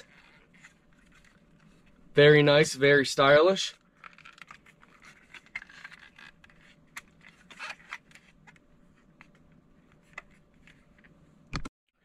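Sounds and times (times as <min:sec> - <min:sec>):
plastic light scraping and clicking: 0:04.0 - 0:11.7.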